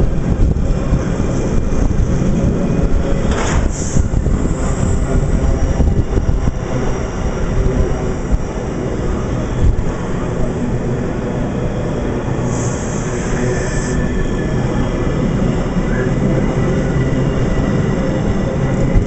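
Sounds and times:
train wheels rushing on rails: 0.0s - 19.0s.

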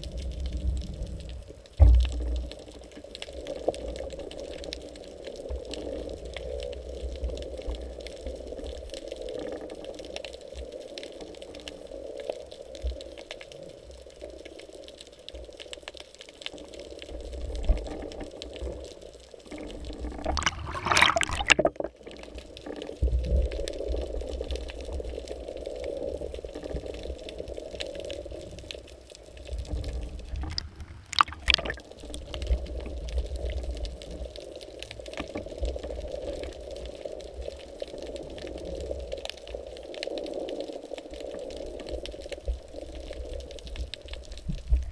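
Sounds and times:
underwater water wash: 0.0s - 44.9s
bursts of water noise: 19.7s - 22.2s, 29.5s - 32.9s.

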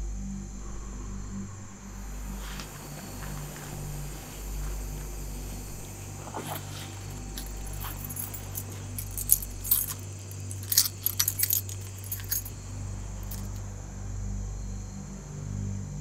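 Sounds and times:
low steady hum: 0.0s - 16.0s
keys jangling: 2.4s - 12.6s, 13.2s - 13.6s.

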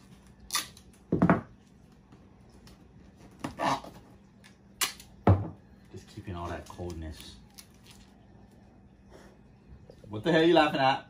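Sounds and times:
duct tape tearing: 0.0s - 1.0s.

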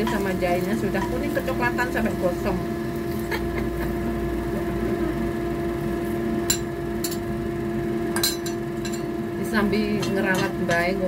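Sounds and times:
steady mechanical hum: 0.0s - 11.0s
metal spatula clinking on ceramic bowl: 8.2s - 9.1s, 10.0s - 11.0s.

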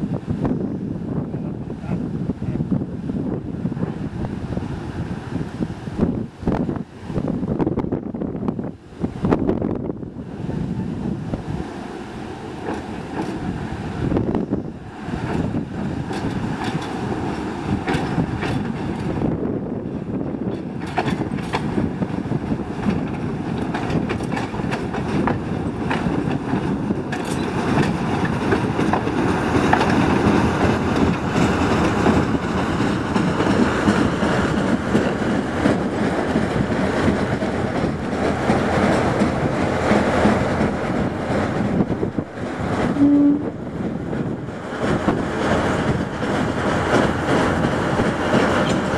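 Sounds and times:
diesel locomotive engine: 0.0s - 48.9s
wheels clattering over rail joints: 15.2s - 19.2s, 20.3s - 21.8s, 22.5s - 42.8s.

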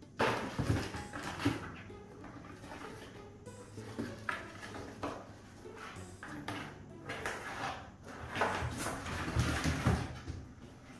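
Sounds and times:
kittens scratching on cardboard: 4.0s - 10.9s.

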